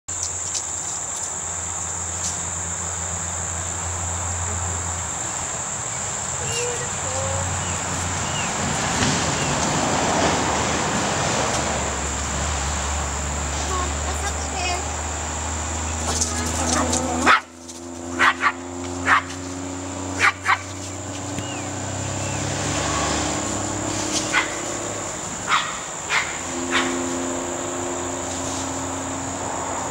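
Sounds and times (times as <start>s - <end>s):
high-pitched insect drone: 0.1s - 9.5s, 11.7s - 29.9s
dog barking: 16.8s - 17.5s, 18.1s - 19.4s, 20.2s - 20.7s, 24.3s - 24.6s, 25.5s - 27.0s.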